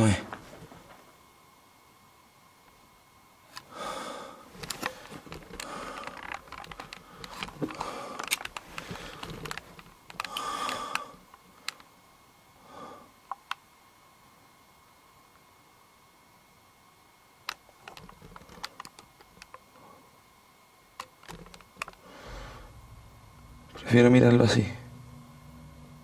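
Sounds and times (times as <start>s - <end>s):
rustling and scraping: 0.2s - 1.2s, 4.5s - 10.4s
sharp clicks: 4.6s - 11.9s, 17.5s - 19.6s, 21.0s - 22.0s.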